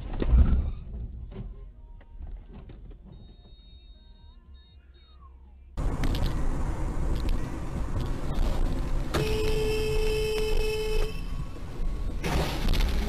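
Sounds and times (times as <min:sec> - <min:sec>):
road and engine rumble: 0:00.0 - 0:13.0
car horn: 0:09.1 - 0:11.7.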